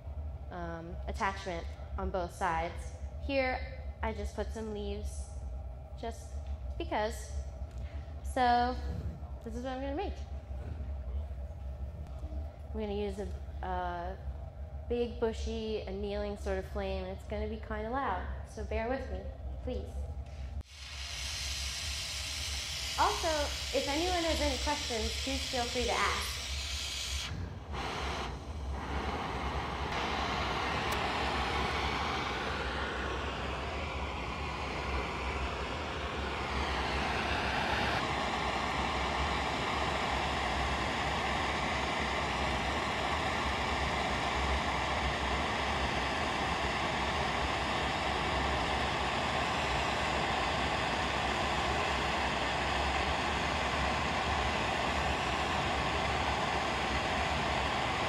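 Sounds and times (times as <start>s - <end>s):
torch flame rushing hiss: 20.6s - 58.0s.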